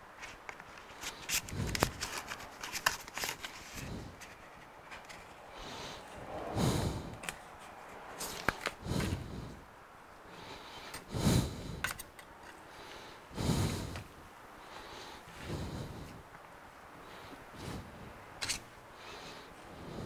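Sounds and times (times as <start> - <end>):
soft breathy swells: 3.6 - 11.9, 12.6 - 20.0.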